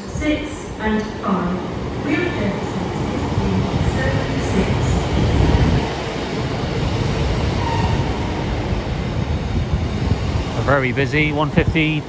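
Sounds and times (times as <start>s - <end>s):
diesel train rumbling on track: 0.0s - 12.0s.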